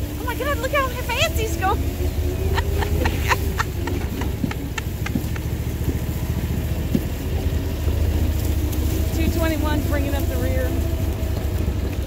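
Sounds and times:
vehicle engine running: 0:00.0 - 0:12.0
sharp clicks and knocks: 0:03.8 - 0:07.5.

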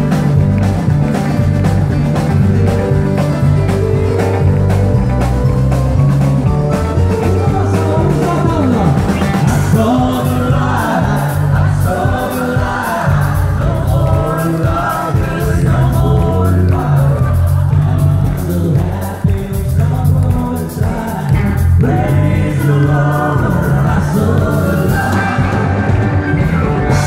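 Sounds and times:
country band playing: 0:00.0 - 0:27.0
people singing: 0:07.3 - 0:27.0.

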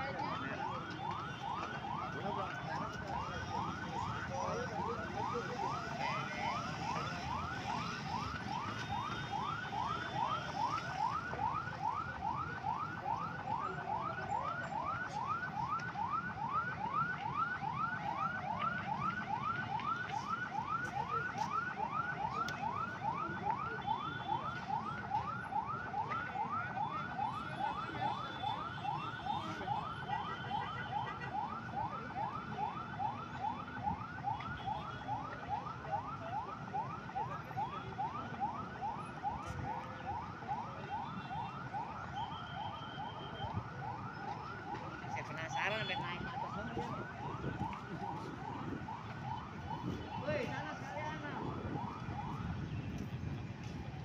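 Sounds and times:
fire engine siren yelping: 0:00.0 - 0:54.0
traffic rumble: 0:00.0 - 0:54.0.

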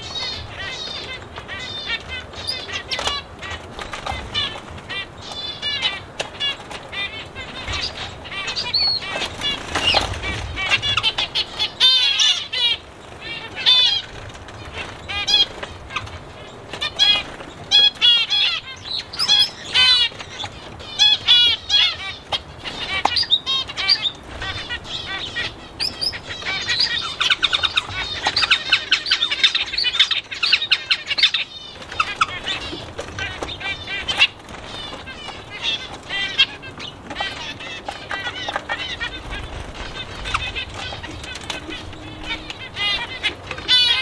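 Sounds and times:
small birds chirping: 0:00.0 - 0:44.0.

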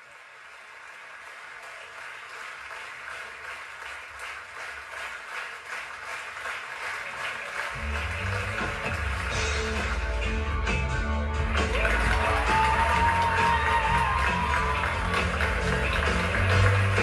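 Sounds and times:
audience applause: 0:00.0 - 0:10.3, 0:11.4 - 0:17.0
band music: 0:07.8 - 0:17.0.

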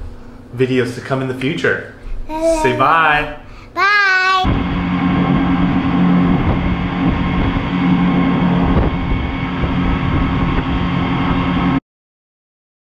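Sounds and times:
boat engine droning: 0:00.6 - 0:03.6, 0:04.5 - 0:11.8.

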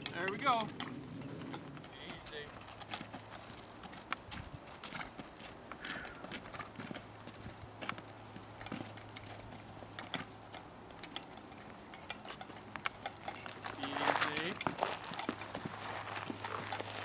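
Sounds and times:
hooves on rocky dirt trail: 0:00.0 - 0:17.0.

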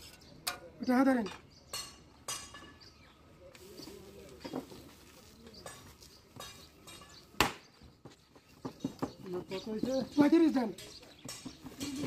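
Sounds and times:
faint voices: 0:03.1 - 0:07.0.

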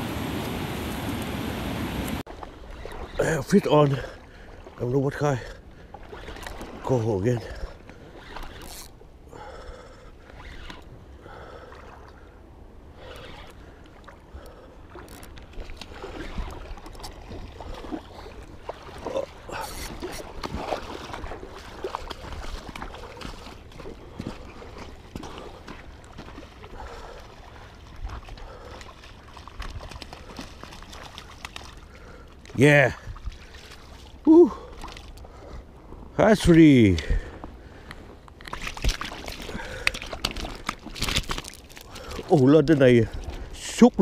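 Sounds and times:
water splashing: 0:00.0 - 0:09.0, 0:13.0 - 0:35.4, 0:38.4 - 0:44.0.

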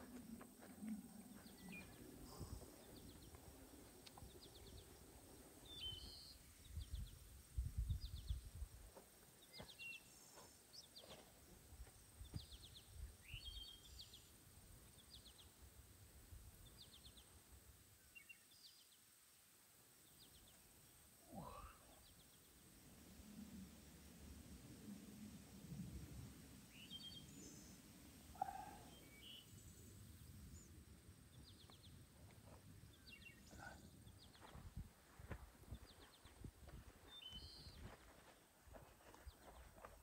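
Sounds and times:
small birds chirping: 0:00.1 - 0:08.7, 0:09.3 - 0:15.6, 0:26.7 - 0:40.0.

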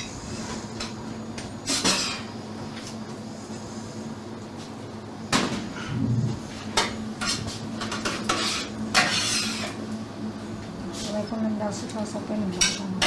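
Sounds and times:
steady low hum: 0:00.0 - 0:13.0
utensils clinking on dishes: 0:06.8 - 0:09.8, 0:12.6 - 0:13.0.

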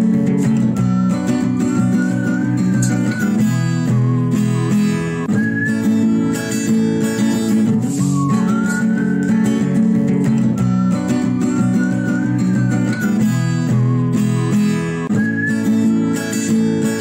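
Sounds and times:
strummed acoustic guitar: 0:00.0 - 0:17.0.

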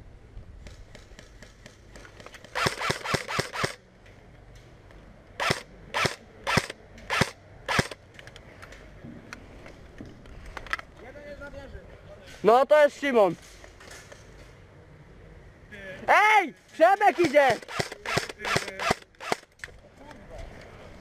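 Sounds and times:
airsoft rifle shots: 0:00.7 - 0:03.8, 0:05.4 - 0:08.0, 0:17.1 - 0:19.5.

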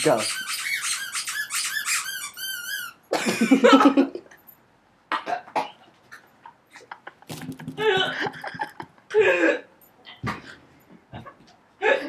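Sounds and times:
high squeaky whimpers: 0:00.0 - 0:03.1.

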